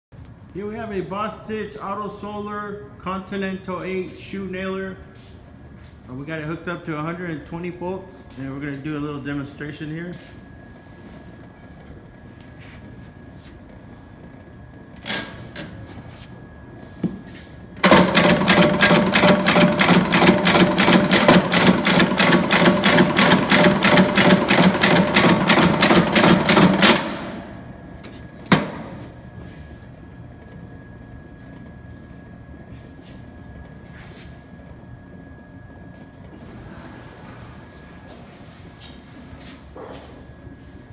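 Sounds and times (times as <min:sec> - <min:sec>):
electric nailer driving nails: 0:17.8 - 0:27.5.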